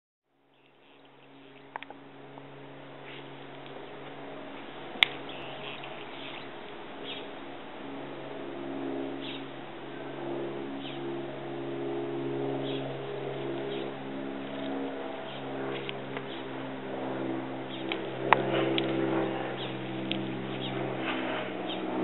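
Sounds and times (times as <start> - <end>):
mechanical motor hum: 0.6 - 22.0
high bird chirps: 5.2 - 7.3, 9.2 - 9.5.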